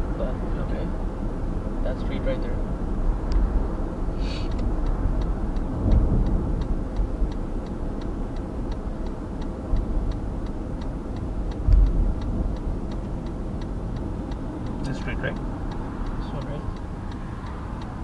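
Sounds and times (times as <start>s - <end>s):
car driving low rumble: 0.0s - 18.0s
turn signal clicking: 3.2s - 3.8s, 4.4s - 18.0s.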